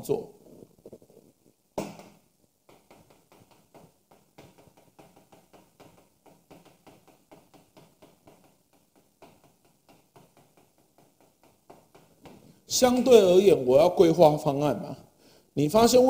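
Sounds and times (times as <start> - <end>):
chalk tapping and scraping: 1.8 - 13.7.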